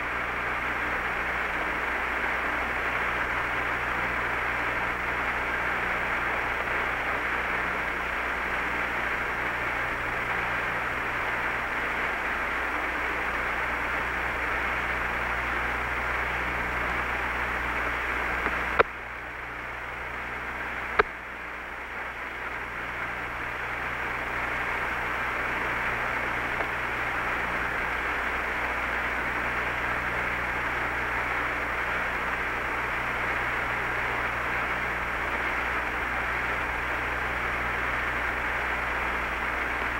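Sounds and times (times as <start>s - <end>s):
radio static hiss and hum: 0.0s - 39.9s
sharp radio clicks: 18.4s - 19.0s, 20.9s - 21.2s.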